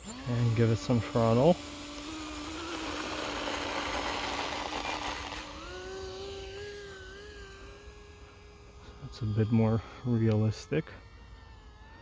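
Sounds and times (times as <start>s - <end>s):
model aircraft propellers whining: 0.0s - 12.0s.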